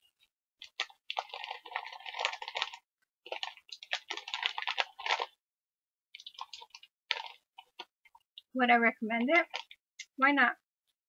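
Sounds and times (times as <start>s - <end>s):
foil chip bag crinkling: 0.6s - 5.4s, 6.2s - 7.9s, 9.2s - 9.8s.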